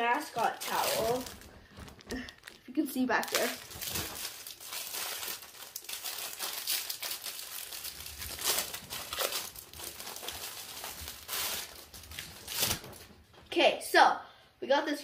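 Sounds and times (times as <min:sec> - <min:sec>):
plastic packaging crinkling: 0:00.0 - 0:13.2.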